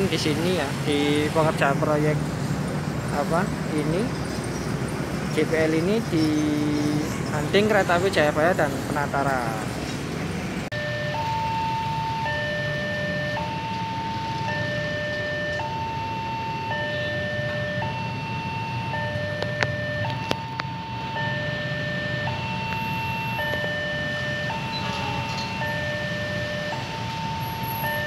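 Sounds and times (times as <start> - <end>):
low traffic rumble: 0.0 - 28.0
level crossing two-note alarm: 10.7 - 28.0.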